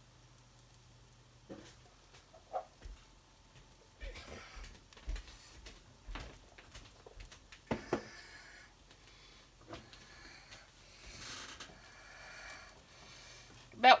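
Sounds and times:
soft hiss: 0:00.0 - 0:14.0.

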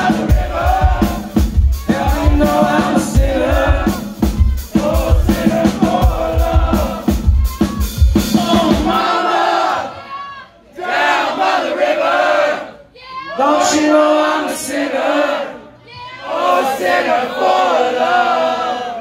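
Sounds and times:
live rock band playing: 0:00.0 - 0:09.0.

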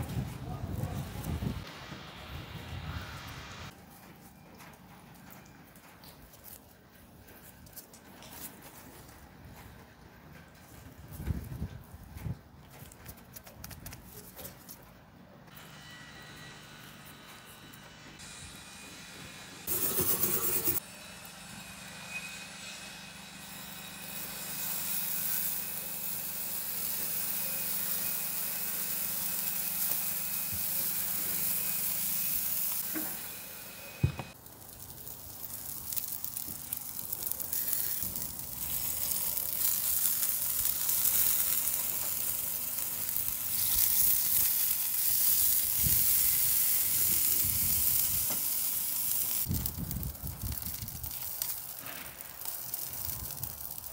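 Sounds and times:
food sizzling on a grill: 0:23.5 - 0:53.9.

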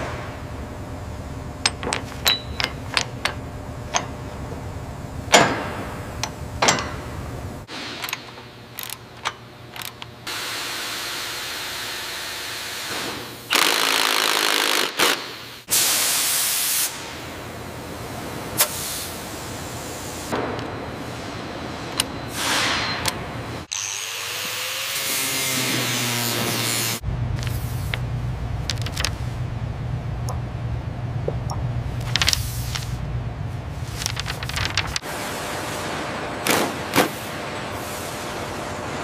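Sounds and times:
steady motor hum: 0:00.0 - 0:12.8, 0:23.2 - 0:35.6
power tools running: 0:23.7 - 0:27.0.

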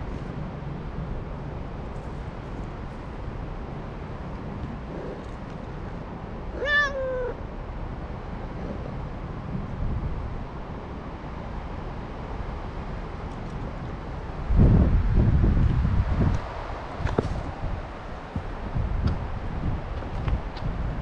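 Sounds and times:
low wind noise: 0:00.0 - 0:21.0
cat meowing: 0:06.5 - 0:07.4.

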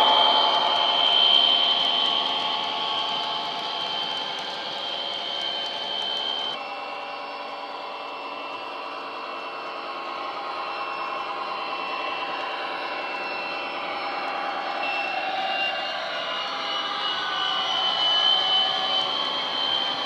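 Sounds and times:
diesel engine drone from small speaker: 0:00.0 - 0:06.7.

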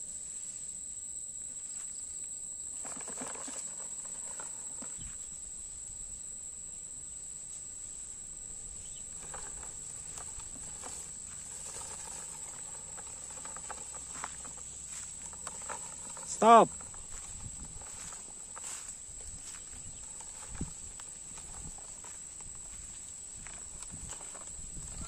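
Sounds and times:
high insect drone: 0:00.0 - 0:25.0
toy truck dragged over leaves: 0:02.8 - 0:05.0, 0:09.2 - 0:17.1
dry leaves crackling underfoot: 0:09.1 - 0:25.0.

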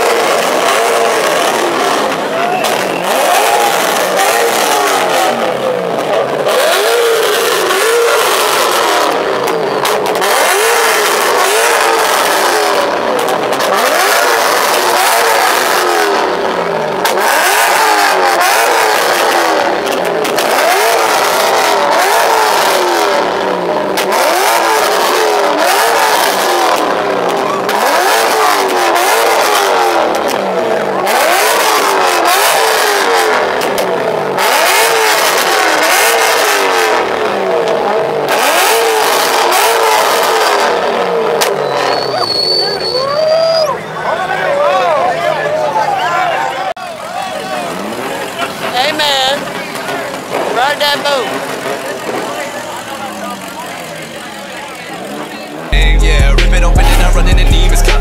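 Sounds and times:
loud noisy wash: 0:00.0 - 0:41.4
car engine revving hard: 0:00.0 - 0:42.8, 0:47.4 - 0:58.0.

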